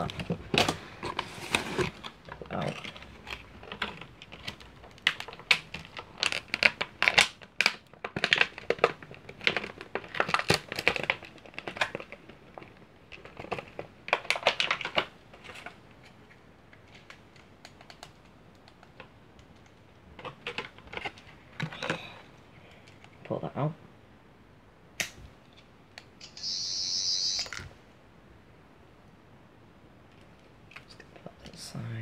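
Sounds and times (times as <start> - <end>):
plastic packaging crinkling: 0.0 - 15.8
small clicks and rustles: 0.1 - 23.3.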